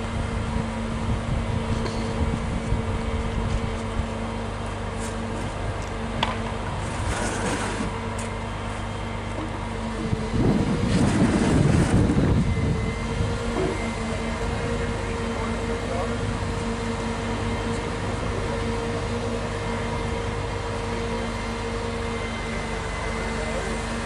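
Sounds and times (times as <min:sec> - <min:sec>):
crane engine hum: 0:00.0 - 0:24.0
loud rough noise: 0:10.0 - 0:16.5.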